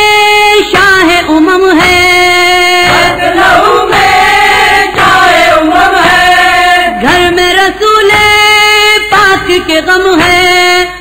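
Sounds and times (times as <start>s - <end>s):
voices chanting a lament: 2.6s - 8.0s.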